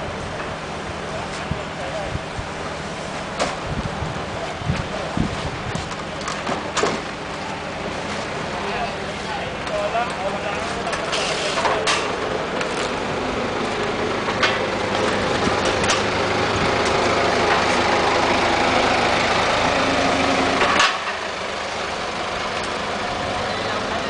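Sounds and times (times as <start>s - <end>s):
forklift engine droning: 0.0s - 24.0s
metal carts clanking: 5.7s - 13.0s, 13.6s - 18.2s, 20.4s - 21.5s.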